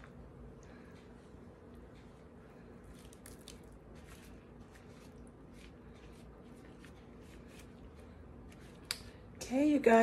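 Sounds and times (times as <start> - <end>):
hands squishing damp mix: 2.0 - 9.4.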